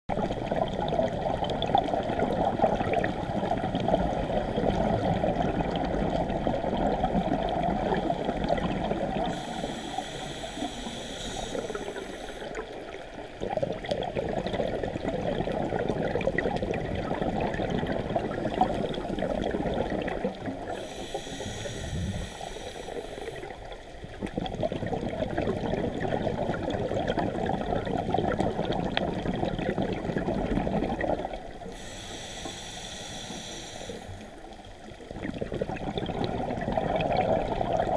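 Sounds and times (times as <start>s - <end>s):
bubbling exhalation underwater: 0.1s - 9.4s, 13.4s - 20.8s, 21.4s - 22.4s, 24.1s - 31.6s, 35.0s - 37.9s
hissing regulator inhalation: 9.2s - 12.6s, 20.7s - 23.6s, 31.7s - 34.4s.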